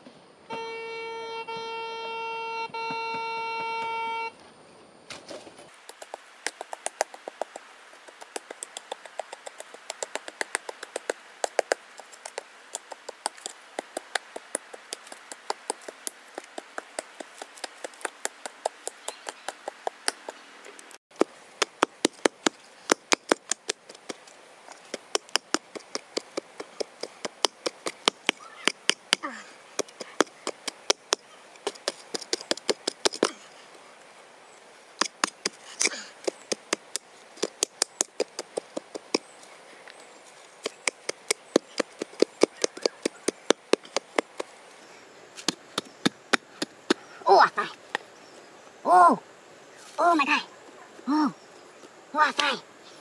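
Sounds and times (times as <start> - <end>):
hand pick chopping into earth: 24.8 - 33.4, 35.0 - 39.3, 40.6 - 44.5.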